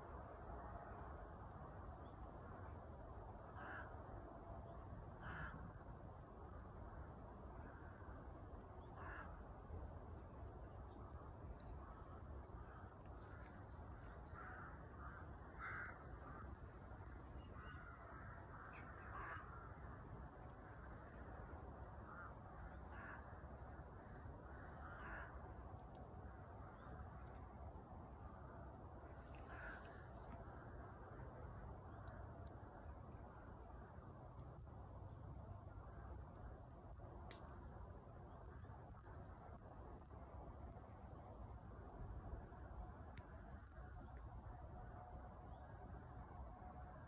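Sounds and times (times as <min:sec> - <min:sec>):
low background noise: 0:00.0 - 0:47.0
distant crows cawing: 0:03.4 - 0:04.1, 0:05.1 - 0:05.9, 0:08.8 - 0:09.5, 0:11.8 - 0:27.5, 0:28.2 - 0:33.7
crow cawing: 0:03.6 - 0:03.9, 0:05.2 - 0:05.6, 0:09.0 - 0:09.3, 0:14.3 - 0:16.5, 0:17.5 - 0:19.9, 0:22.0 - 0:23.3, 0:24.4 - 0:25.4, 0:29.3 - 0:30.3.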